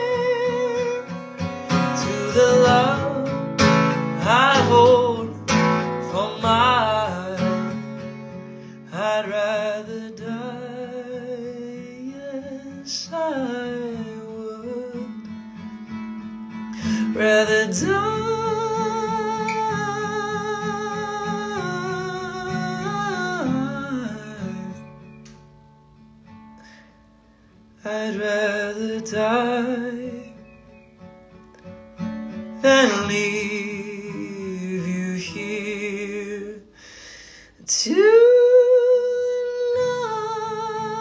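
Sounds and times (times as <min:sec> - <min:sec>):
man singing with vibrato: 0:00.0 - 0:15.3, 0:16.7 - 0:25.1, 0:27.8 - 0:30.6, 0:32.6 - 0:41.0
acoustic guitar: 0:00.0 - 0:41.0.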